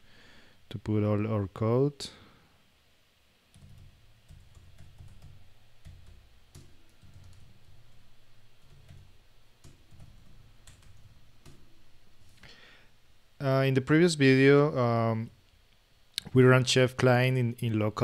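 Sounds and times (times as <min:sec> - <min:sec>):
typing on computer keyboard: 0:03.5 - 0:07.7, 0:08.6 - 0:11.6.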